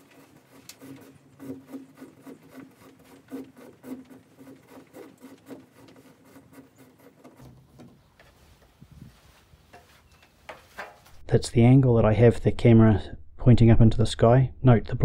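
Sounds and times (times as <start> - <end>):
cable rubbing and scraping: 0.0 - 11.2.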